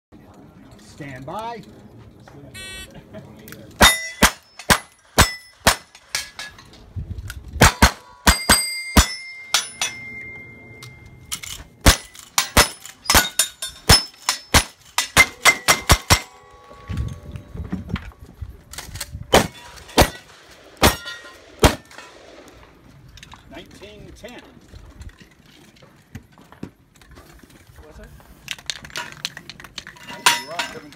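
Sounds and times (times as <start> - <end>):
steel plates ringing: 3.8 - 6.6, 8.0 - 18.4, 19.4 - 22.4, 30.1 - 30.9
rifle shots: 19.3 - 23.0.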